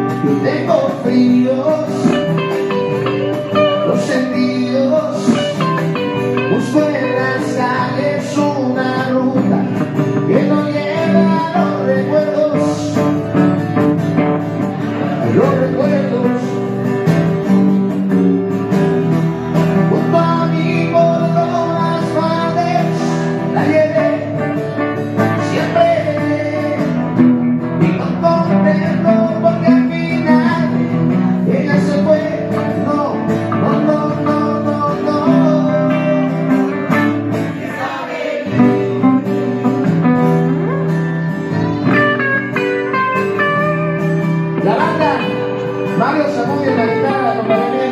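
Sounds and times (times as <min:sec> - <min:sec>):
acoustic guitars playing rock: 0:00.0 - 0:47.9.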